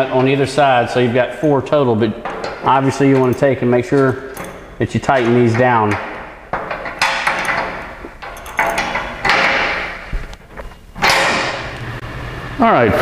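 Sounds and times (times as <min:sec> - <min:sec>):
wrench clicking and scraping: 0:02.2 - 0:11.7.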